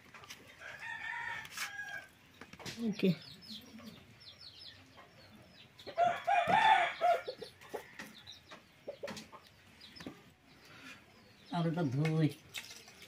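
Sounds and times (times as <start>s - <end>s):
rooster crowing: 0.6s - 2.1s, 6.0s - 8.1s.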